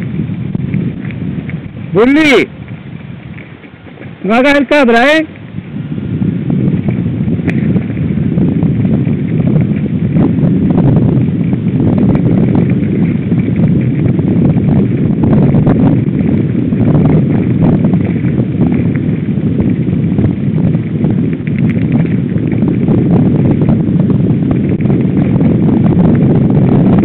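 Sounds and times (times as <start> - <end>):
tyres rumbling on dirt and stones: 0.0 - 27.0
wind buffeting microphone: 0.0 - 27.0
bike knocks and rattles: 6.6 - 27.0.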